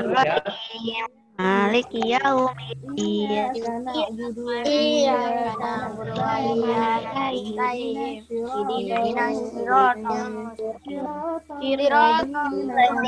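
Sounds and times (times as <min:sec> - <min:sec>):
children chanting in unison: 0:02.7 - 0:13.0.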